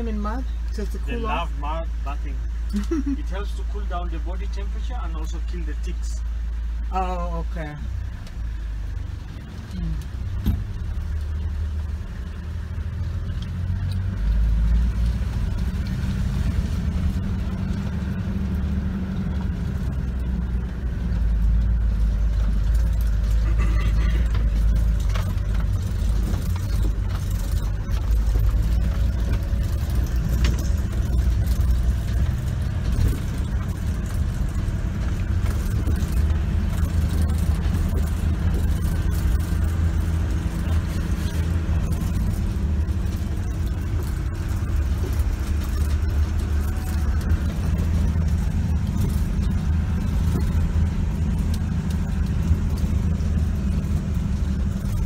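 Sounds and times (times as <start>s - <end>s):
vehicle engine and road rumble: 0.0s - 55.0s
vehicle body rattles and knocks: 20.9s - 55.0s.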